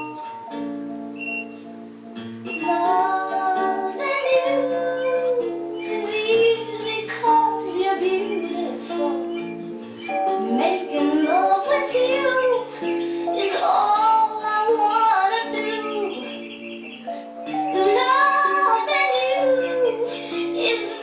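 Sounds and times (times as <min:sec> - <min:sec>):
held chords and bass accompaniment: 0:00.0 - 0:21.0
woman singing slow love song: 0:02.5 - 0:09.6, 0:10.4 - 0:16.5, 0:17.7 - 0:21.0.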